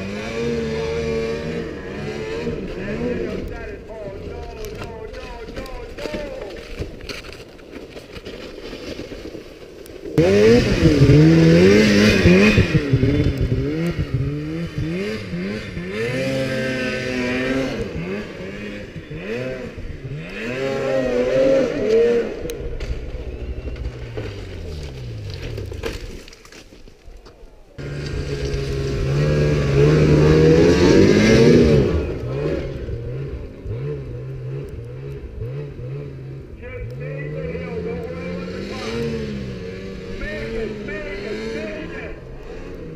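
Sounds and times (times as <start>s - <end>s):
snowmobile engines revving: 0.0s - 7.4s, 10.0s - 26.0s, 27.4s - 42.9s.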